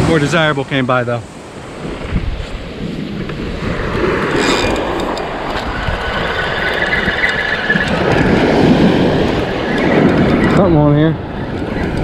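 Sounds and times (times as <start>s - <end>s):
surf washing: 0.0s - 12.0s
wind on microphone: 0.0s - 12.0s
fishing reel squealing: 4.4s - 8.3s.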